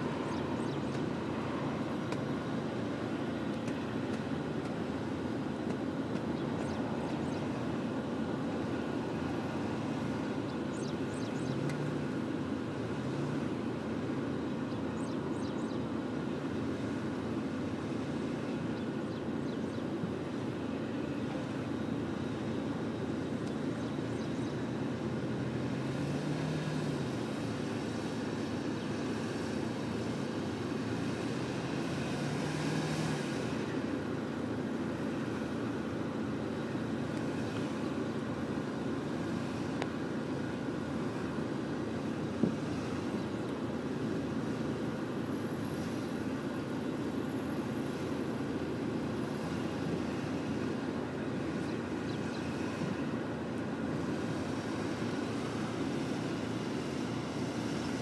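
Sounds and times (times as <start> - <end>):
vehicle engine revving: 29.1 - 33.7.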